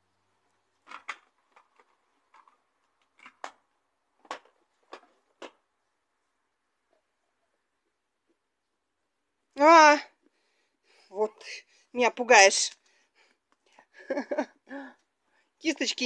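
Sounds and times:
small jar clicks and knocks: 0.8s - 5.7s.

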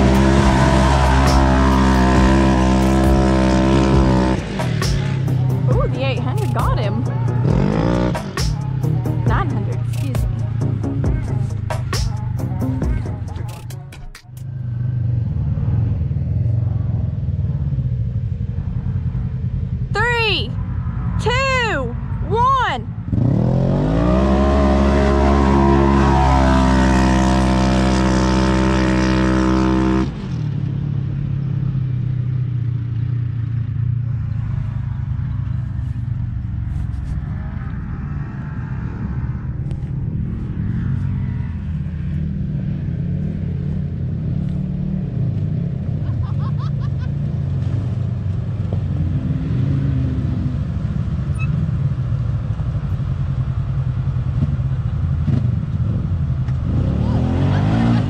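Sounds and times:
engines revving at full throttle: 0.0s - 13.6s, 21.3s - 32.2s, 33.3s - 58.0s
engines idling: 0.0s - 21.0s, 30.6s - 49.2s.

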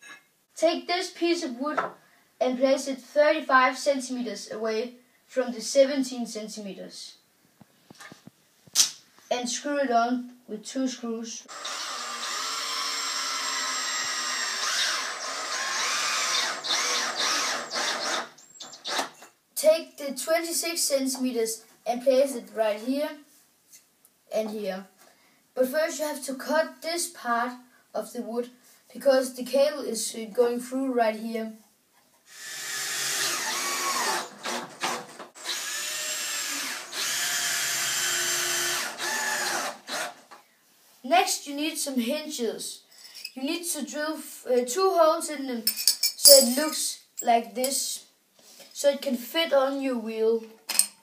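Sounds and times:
power drill driving screw into wood: 11.5s - 19.2s, 32.3s - 40.3s.

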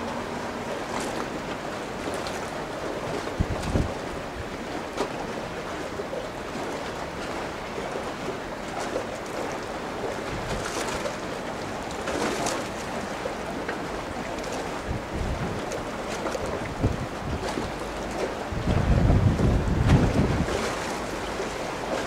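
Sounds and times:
wind buffeting microphone: 3.1s - 4.6s, 14.7s - 21.0s.

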